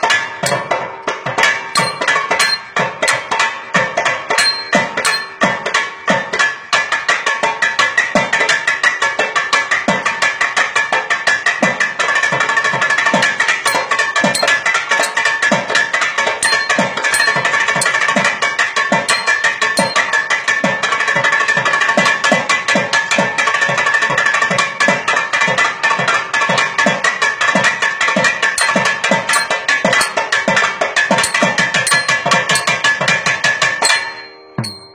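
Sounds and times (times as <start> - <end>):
barrel drum rhythm: 0.0 - 5.7, 13.1 - 20.8, 27.6 - 34.9.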